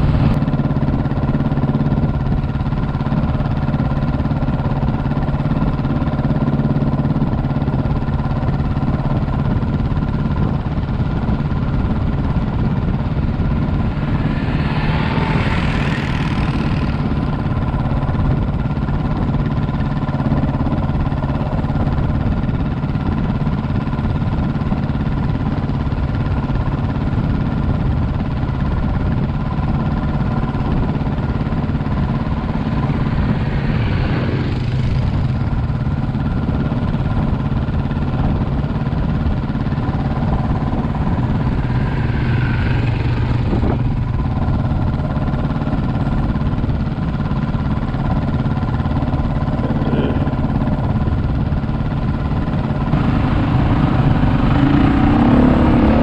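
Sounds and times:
quad bike engine idling: 0:00.0 - 0:56.0
engine rising whines: 0:12.0 - 0:18.5, 0:30.4 - 0:36.2, 0:39.6 - 0:45.0, 0:52.5 - 0:56.0.

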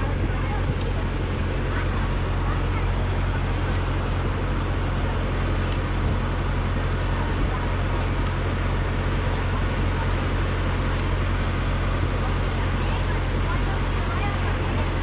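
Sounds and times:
moving vehicle rumble: 0:00.0 - 0:15.0.

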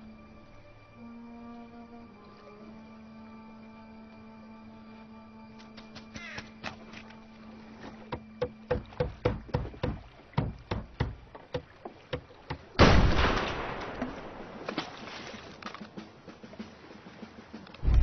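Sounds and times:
hollow knocks: 0:08.1 - 0:12.7.

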